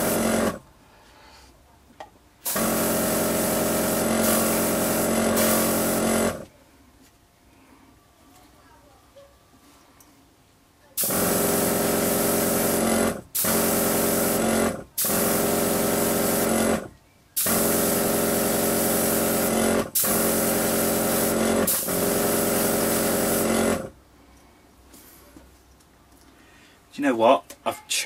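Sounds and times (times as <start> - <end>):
airbrush air hiss: 0.0 - 0.4, 2.5 - 6.0
compressor hum: 2.4 - 6.5.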